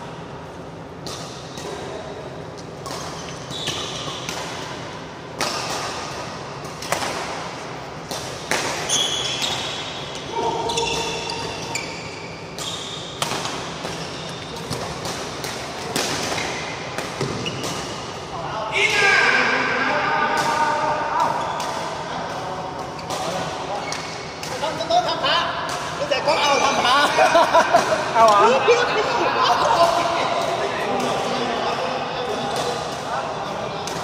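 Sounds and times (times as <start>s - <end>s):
racket hitting shuttlecock: 2.8s - 10.0s, 12.5s - 18.2s
shoe soles squeaking: 2.9s - 4.3s, 8.8s - 13.2s, 14.0s - 14.8s, 17.2s - 17.8s.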